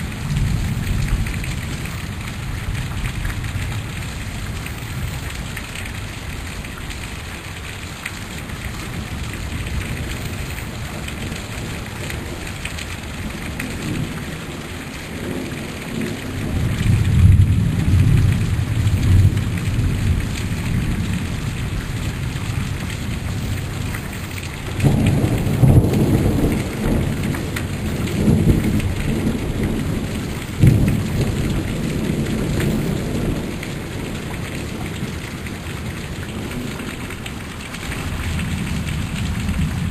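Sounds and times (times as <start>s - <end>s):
heavy rain: 0.0s - 39.9s
thunder rolling: 24.7s - 35.2s.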